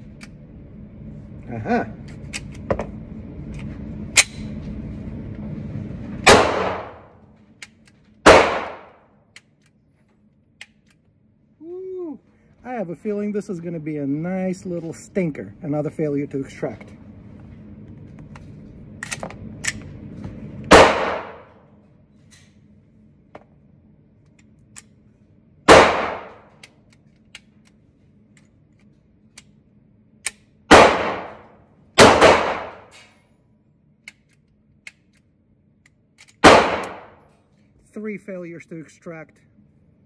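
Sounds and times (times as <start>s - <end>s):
pistol shots indoors: 6.2s - 9.5s, 20.7s - 21.8s, 25.6s - 27.6s, 29.5s - 33.2s, 36.2s - 37.4s.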